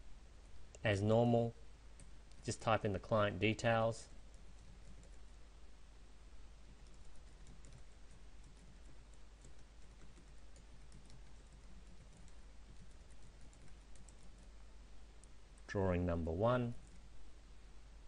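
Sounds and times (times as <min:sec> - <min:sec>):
low steady hum: 0:00.0 - 0:18.0
keyboard typing clicks: 0:06.8 - 0:14.5.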